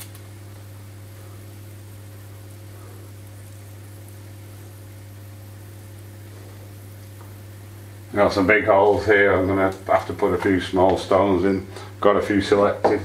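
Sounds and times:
even hiss: 0.0s - 13.0s
steady low hum: 0.0s - 13.0s.

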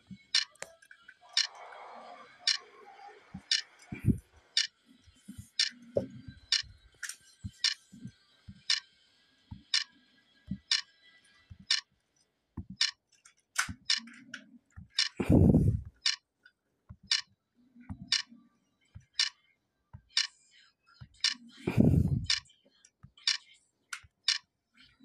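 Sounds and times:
phone counter app clicks: 0.3s - 0.6s, 3.4s - 4.7s, 10.6s - 10.8s, 12.8s - 13.0s, 13.8s - 14.1s, 15.0s - 16.2s, 17.1s - 17.3s, 18.0s - 18.3s, 21.2s - 22.4s, 23.2s - 23.4s
soft low thumps: 14.8s - 16.1s, 21.0s - 22.4s.

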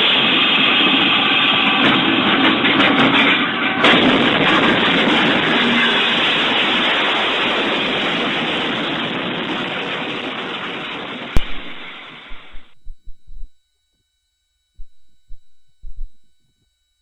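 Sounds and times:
train crash: 1.8s - 12.6s.

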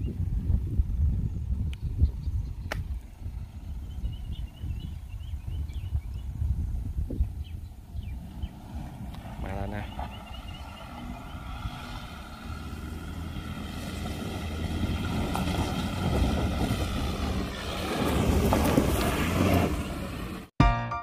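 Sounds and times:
pickup engine under load: 7.4s - 20.5s
music: 20.6s - 21.0s.

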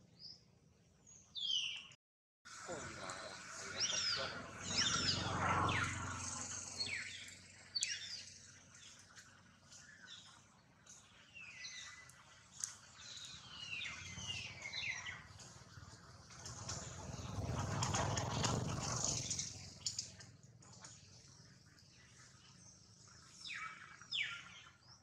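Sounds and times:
low rumble: 16.2s - 19.9s.

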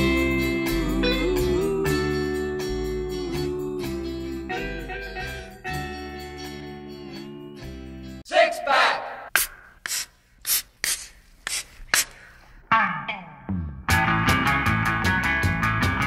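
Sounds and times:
music with sliding melody: 0.0s - 8.2s.

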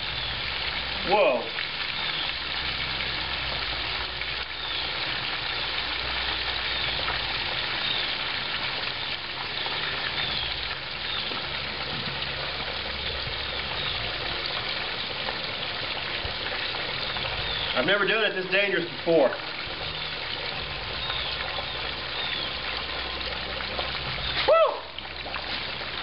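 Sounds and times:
hot oil sizzling: 0.0s - 26.0s.

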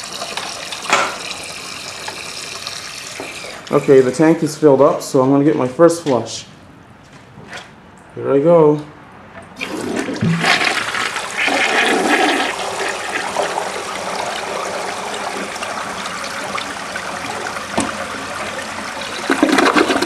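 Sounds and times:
toilet flushing: 0.0s - 4.2s, 9.6s - 20.0s
water swirling down drain: 9.6s - 20.0s.

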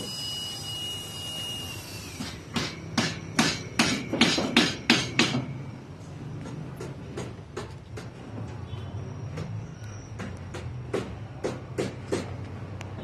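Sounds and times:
hammer striking: 2.2s - 5.6s, 10.2s - 12.4s.

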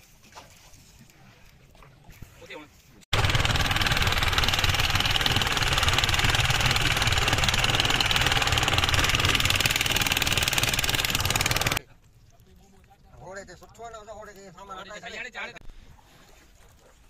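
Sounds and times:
boat engine running: 3.1s - 11.8s.

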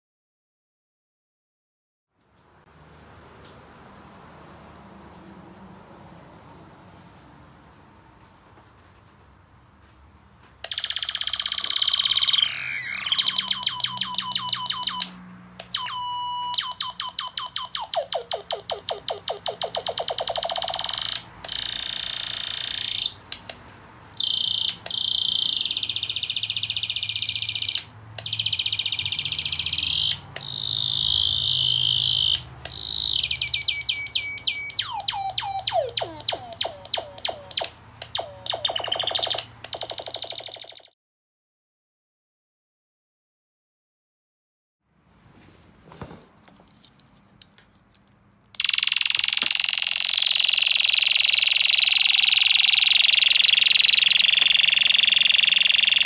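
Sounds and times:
electronic laser sound effects: 10.7s - 15.1s, 15.7s - 23.2s, 24.1s - 40.9s, 48.6s - 56.0s.

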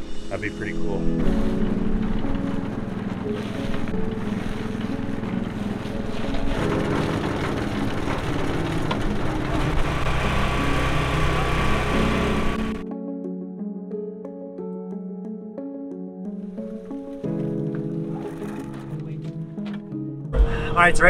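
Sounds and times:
engine running steadily: 1.2s - 12.8s.

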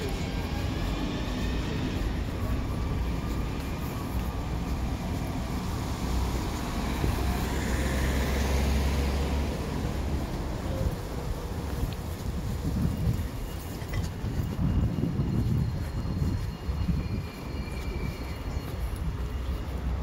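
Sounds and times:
vehicle low rumble: 0.0s - 20.0s.

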